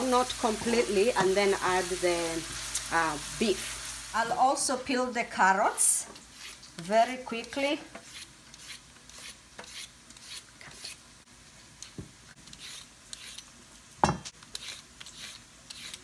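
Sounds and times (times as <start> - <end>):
peeler scraping a carrot: 6.2 - 11.0, 12.4 - 13.5, 14.4 - 16.0.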